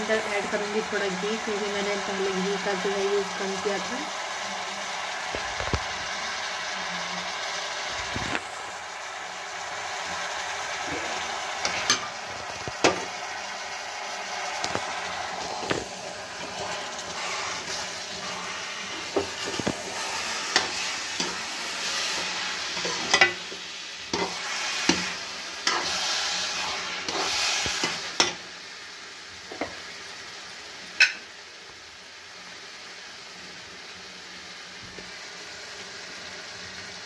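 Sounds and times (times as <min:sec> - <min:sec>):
ghee sizzling: 0:00.0 - 0:37.0
metal spatula scraping pan: 0:24.1 - 0:28.0.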